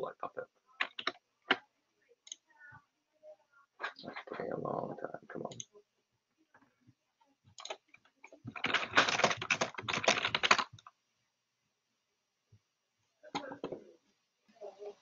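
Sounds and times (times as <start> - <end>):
computer keyboard typing: 0.8 - 1.6, 7.5 - 10.9.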